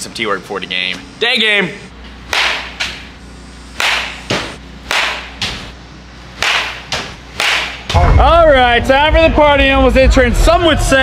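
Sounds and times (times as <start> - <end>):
bat cracking on ball: 2.3 - 3.1, 3.7 - 5.7, 6.3 - 8.0.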